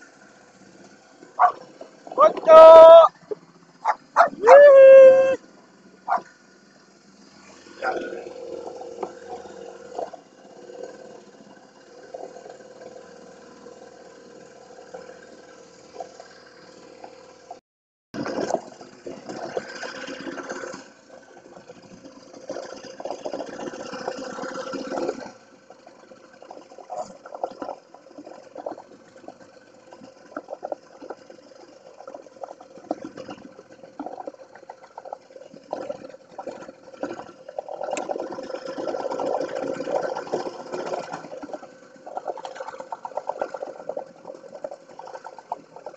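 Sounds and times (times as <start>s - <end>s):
outboard motor running: 0.0s - 17.6s, 18.2s - 45.9s
water splashing against hull: 1.4s - 1.6s, 18.2s - 45.9s.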